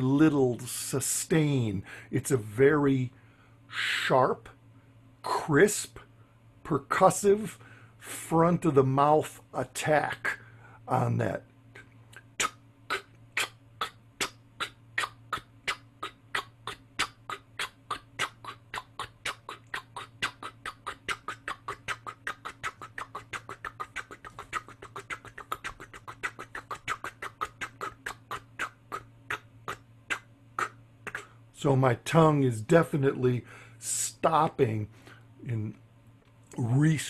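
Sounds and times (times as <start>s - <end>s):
vocal train chugging: 9.2s - 31.4s.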